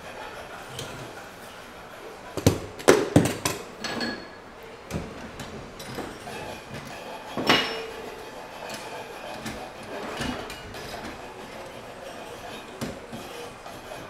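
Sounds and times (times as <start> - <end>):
metal clanking at pipe vice: 5.8 - 11.2.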